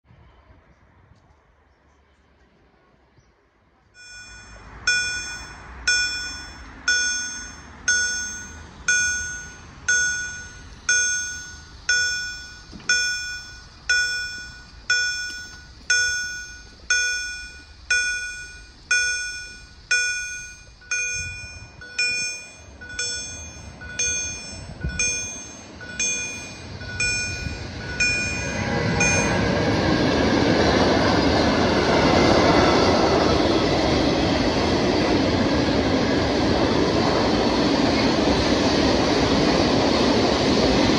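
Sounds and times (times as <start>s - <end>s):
train passing: 2.1s - 40.9s
level crossing warning bell: 4.0s - 34.5s.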